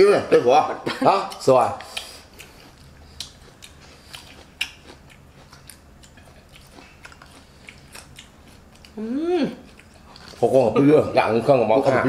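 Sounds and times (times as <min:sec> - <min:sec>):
chewing and biting food: 0:01.3 - 0:09.0, 0:09.6 - 0:10.6.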